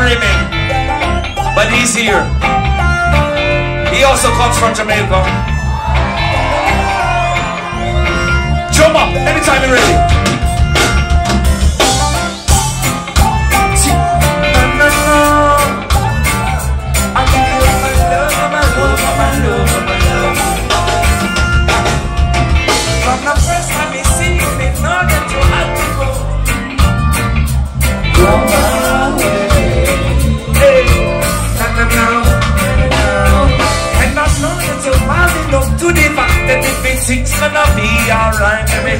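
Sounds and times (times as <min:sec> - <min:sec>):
live reggae band playing: 0:00.0 - 0:38.9
person singing: 0:17.2 - 0:21.3, 0:28.2 - 0:38.9.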